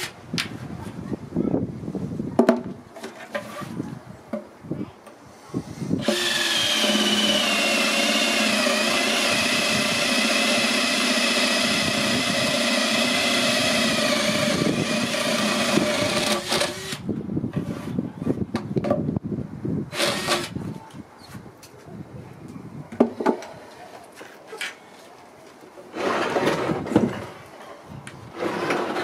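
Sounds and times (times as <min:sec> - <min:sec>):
cordless drill boring wood: 0:06.0 - 0:17.0, 0:19.9 - 0:20.6.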